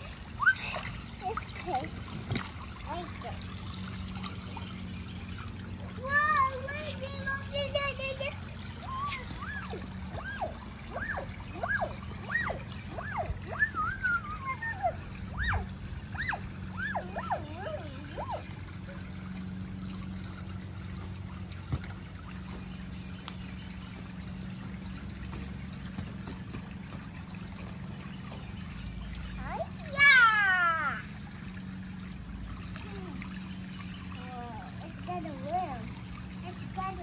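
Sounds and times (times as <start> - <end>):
water splashing into pool: 0.0 - 37.0.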